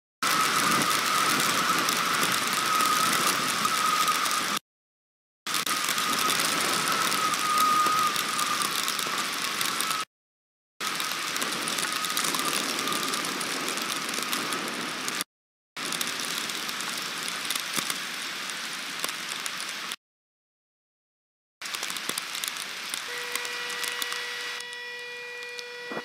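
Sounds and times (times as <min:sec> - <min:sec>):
heavy rain hitting camera: 0:00.2 - 0:04.6, 0:05.5 - 0:10.1, 0:10.8 - 0:15.2, 0:15.8 - 0:20.0, 0:21.6 - 0:24.8.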